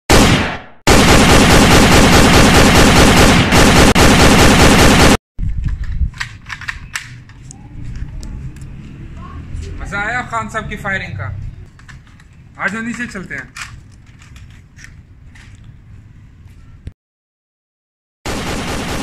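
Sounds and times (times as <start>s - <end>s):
automatic gunfire burst: 0.1s - 5.2s, 18.3s - 19.0s.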